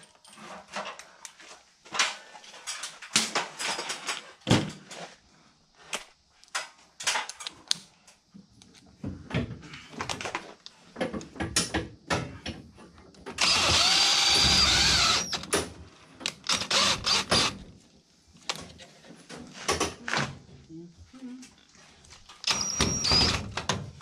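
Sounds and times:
cordless drill motor whine: 13.4s - 15.5s, 16.4s - 17.6s, 22.4s - 23.6s.

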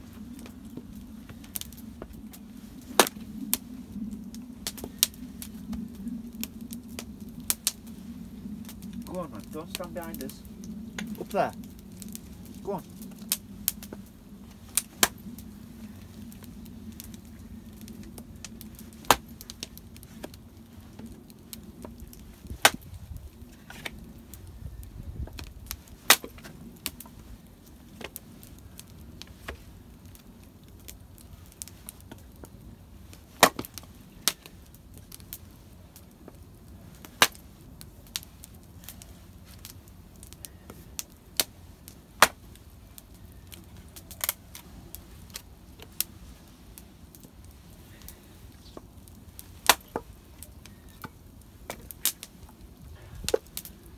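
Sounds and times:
axe chopping wood: 33.4s - 33.7s.

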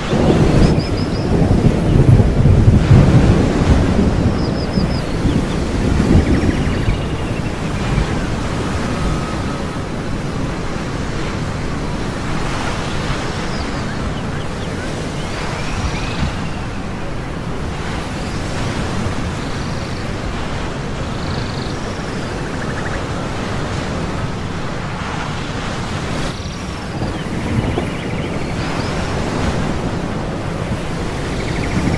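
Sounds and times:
ocean surf washing: 0.0s - 31.9s
wind: 0.0s - 31.9s.

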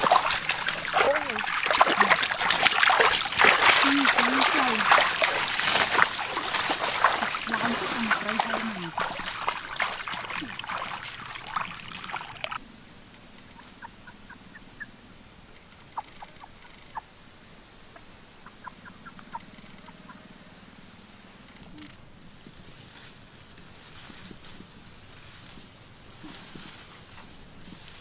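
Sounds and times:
feet wading through water: 0.0s - 12.6s.

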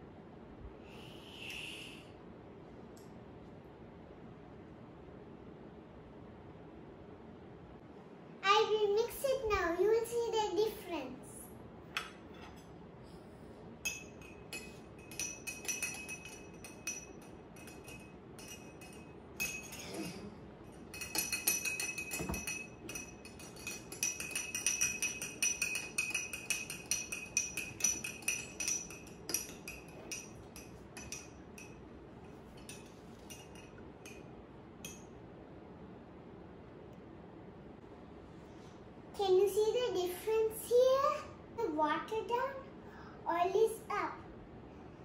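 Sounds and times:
metal spoon clinking glass: 13.8s - 31.8s, 32.6s - 34.2s.

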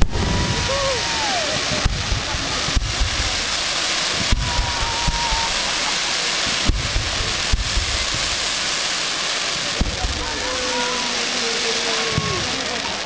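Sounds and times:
firework bangs: 0.0s - 13.0s
spark fountains hissing and crackling: 0.0s - 13.0s.

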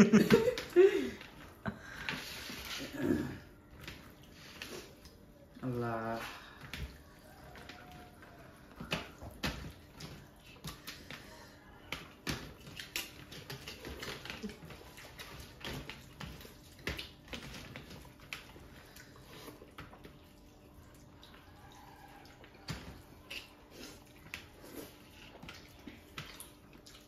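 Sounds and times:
hands squishing wet food: 0.0s - 27.0s.

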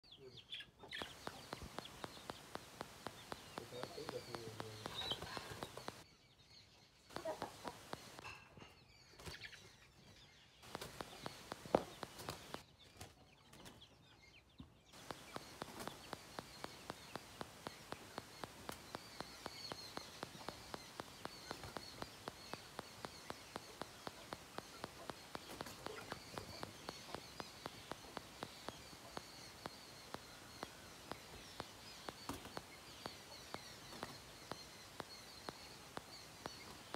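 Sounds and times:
bird chirps: 0.0s - 36.9s
chicken clucks: 0.6s - 6.0s, 7.1s - 8.6s, 15.0s - 36.9s
chickens scuffling: 0.9s - 6.0s, 7.1s - 8.2s, 10.6s - 13.8s, 15.0s - 36.9s
wing flaps: 1.0s - 6.0s, 10.6s - 12.6s, 15.0s - 36.9s
faint steady ticking: 1.0s - 6.1s, 7.1s - 8.3s, 10.6s - 12.6s, 15.0s - 36.9s.

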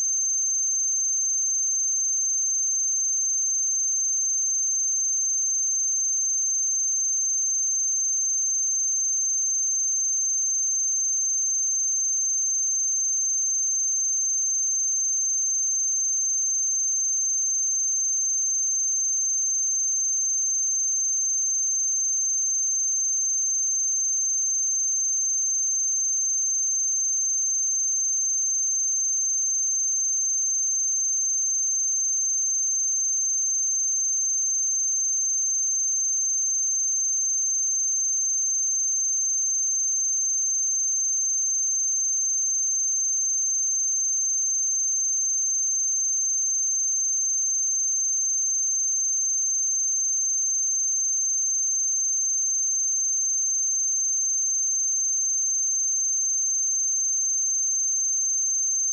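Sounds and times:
high sine-wave test tone: 0.0s - 58.9s.

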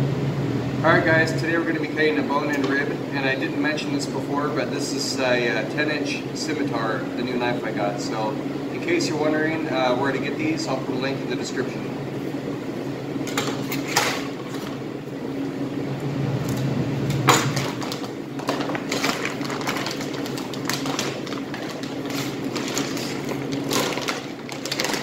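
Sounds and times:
low mechanical hum: 0.0s - 25.0s
plastic wrap crinkling: 17.5s - 25.0s.

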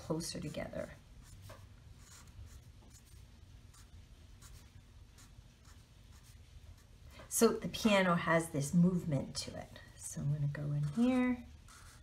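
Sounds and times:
marker scratching on paper: 0.2s - 7.0s, 10.8s - 12.0s.

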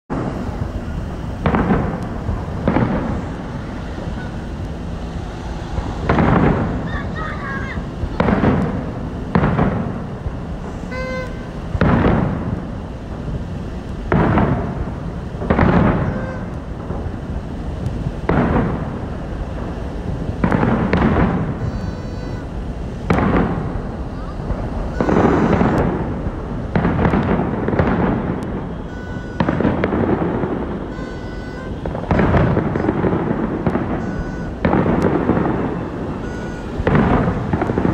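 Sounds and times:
low rumble: 0.1s - 7.2s
fireworks booming: 0.1s - 37.9s.

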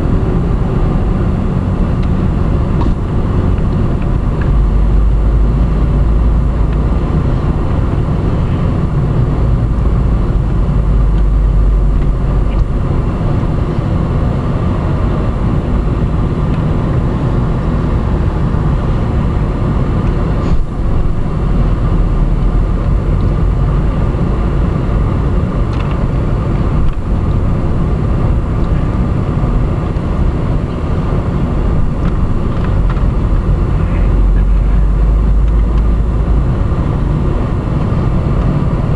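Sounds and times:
car cabin road and engine rumble: 0.0s - 38.9s.

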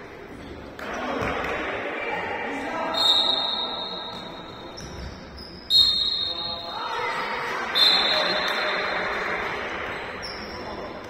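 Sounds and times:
crowd chatter: 0.0s - 11.0s
referee's whistle blasts: 2.9s - 4.7s, 5.6s - 6.8s, 7.8s - 8.9s.

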